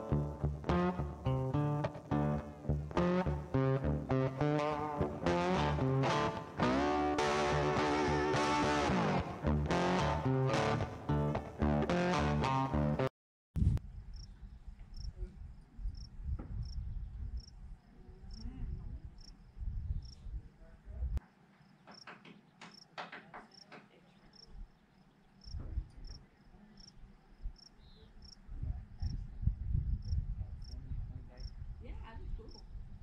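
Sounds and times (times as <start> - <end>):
cricket chirping: 13.9 - 20.2, 23.5 - 28.4, 29.9 - 30.8, 31.4 - 31.6.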